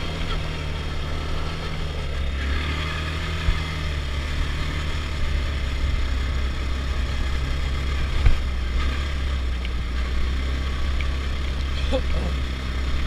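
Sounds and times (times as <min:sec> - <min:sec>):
quad bike engine idling: 0:00.0 - 0:13.0.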